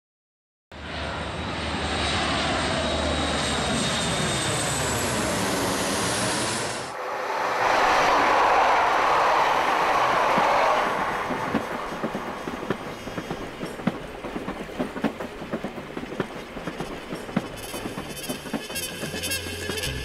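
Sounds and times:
train passing rush: 0.8 - 20.0
wheels clacking over rail joints: 8.6 - 20.0.

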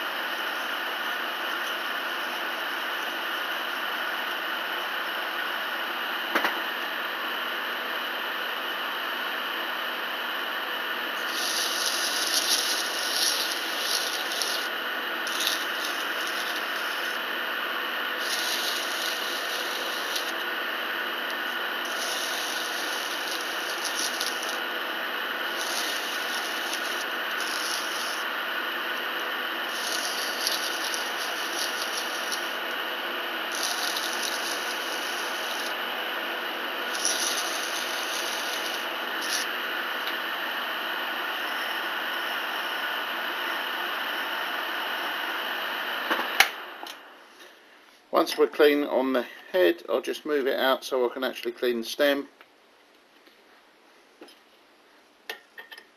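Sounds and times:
electric motor humming: 10.4 - 42.1
abrasive paper scraping metal: 11.2 - 17.2, 18.2 - 20.4, 21.8 - 24.7, 25.5 - 28.3, 29.7 - 32.7, 33.5 - 35.8, 36.9 - 39.5.

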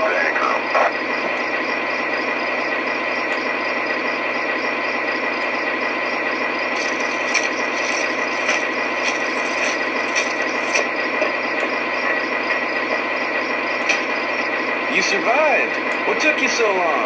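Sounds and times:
model trains rattling: 0.0 - 17.0
sharp clicks: 6.8 - 11.7.

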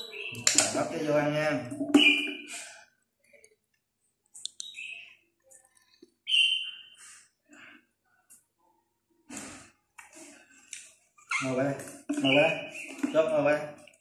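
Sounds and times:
baby monkey squeaking: 11.2 - 11.6.

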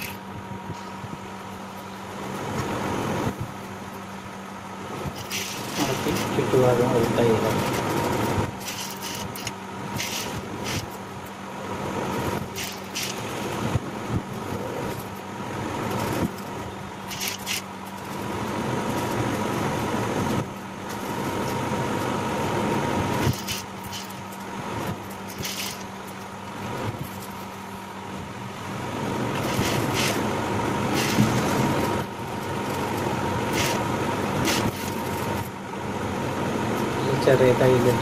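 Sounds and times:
motor humming: 0.0 - 38.0
sewing machine stitching: 5.1 - 11.0, 12.4 - 13.4, 17.0 - 18.2, 24.9 - 25.9, 29.3 - 30.3, 30.9 - 32.0, 32.6 - 35.5.

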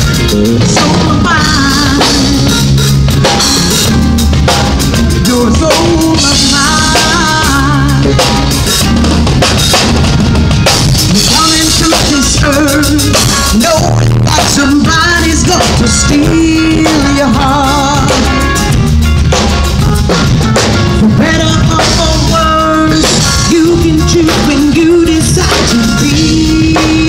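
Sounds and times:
live band playing: 0.0 - 27.0
woman singing into microphone: 0.1 - 2.7, 5.0 - 8.4, 11.1 - 18.6, 21.0 - 27.0.

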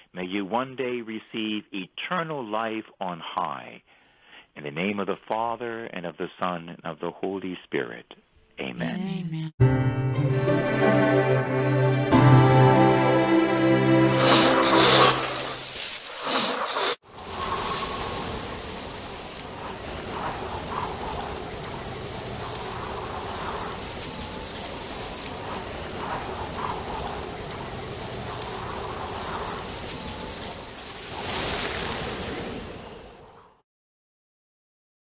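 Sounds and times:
steady rain hiss: 12.9 - 33.4.

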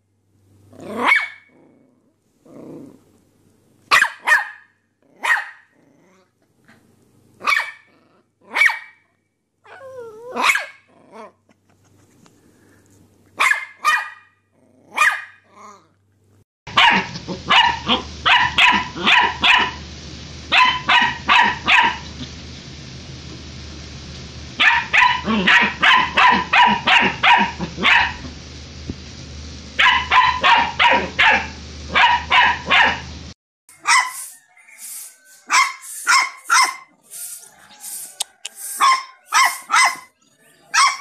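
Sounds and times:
puppy barking in quick runs: 1.0 - 1.4, 3.9 - 5.6, 7.4 - 7.9, 8.5 - 9.0, 10.4 - 10.8, 13.4 - 14.3, 15.0 - 15.4, 16.7 - 19.8, 20.5 - 22.0, 24.6 - 28.2, 29.8 - 33.1, 33.8 - 34.3, 35.5 - 36.9, 38.8 - 40.1, 40.8 - 41.0
small puppy single barks: 3.9 - 5.6, 13.4 - 14.3, 16.7 - 19.8, 29.8 - 33.0, 33.8 - 34.3, 38.8 - 40.1.

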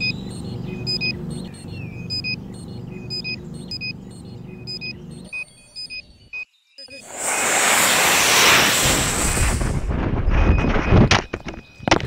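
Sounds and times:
electronic countdown beeps: 0.0 - 7.0.

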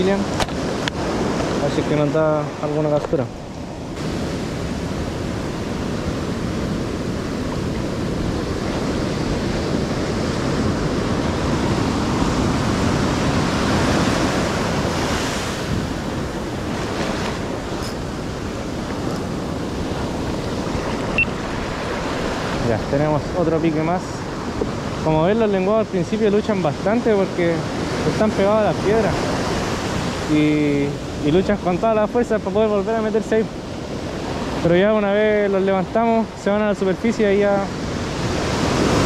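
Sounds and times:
ocean surf washing ashore: 0.0 - 39.0
wind buffeting microphone: 3.2 - 32.4.

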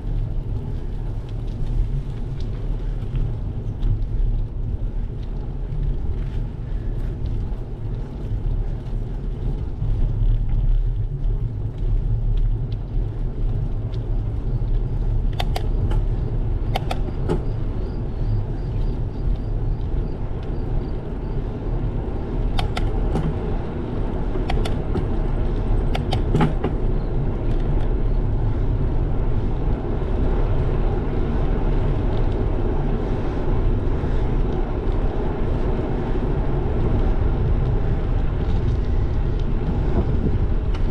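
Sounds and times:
bicycle tyres on asphalt: 0.0 - 40.9
wind on microphone: 0.0 - 40.9
sharp clicks or rattles: 16.7 - 17.4, 22.5 - 23.4, 24.4 - 25.1.

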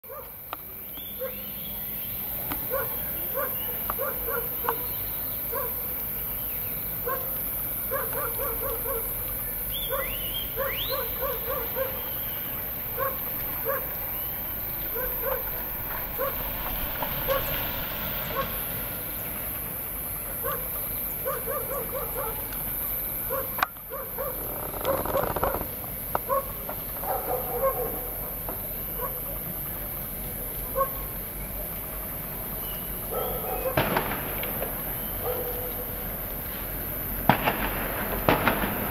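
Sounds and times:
dogs barking: 0.0 - 0.4, 1.2 - 1.5, 2.6 - 5.9, 7.0 - 17.6, 18.2 - 18.7, 20.4 - 22.5, 23.3 - 28.2, 28.9 - 29.3, 30.7 - 31.1, 33.0 - 34.0, 35.2 - 35.9.

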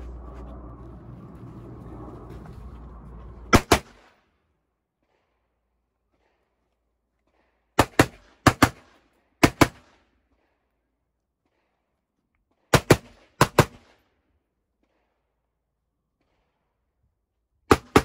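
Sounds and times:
gunshots in quick pairs: 3.5 - 4.1.

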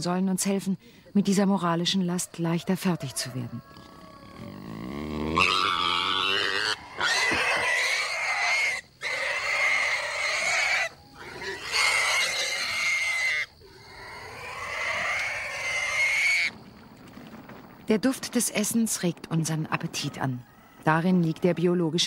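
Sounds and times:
pig squealing: 3.7 - 16.5.

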